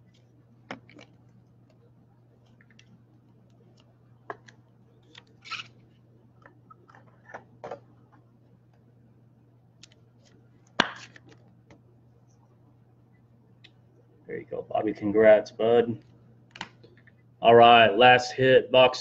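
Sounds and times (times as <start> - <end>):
trading cards being handled: 0.0 - 7.6
steady low hum: 0.0 - 19.0.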